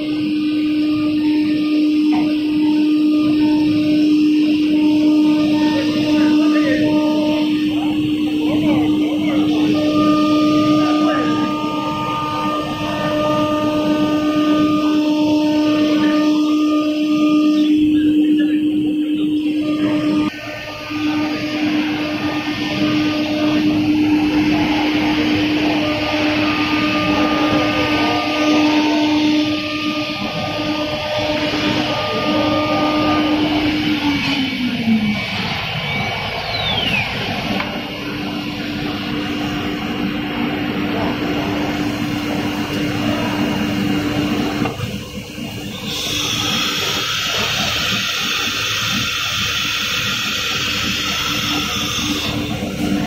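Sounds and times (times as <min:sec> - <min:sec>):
machine hum: 0:00.0 - 0:53.0
router spindle cutting board: 0:19.6 - 0:35.7, 0:37.3 - 0:53.0
compressed air hissing: 0:36.4 - 0:53.0.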